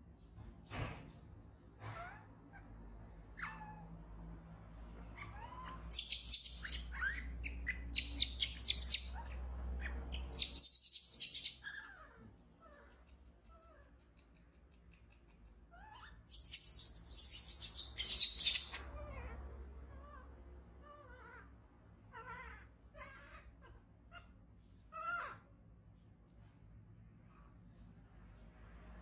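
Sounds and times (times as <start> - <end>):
baby monkey screeching: 3.4 - 3.8, 5.2 - 13.0, 15.7 - 20.2
faint chirping calls: 5.0 - 19.1.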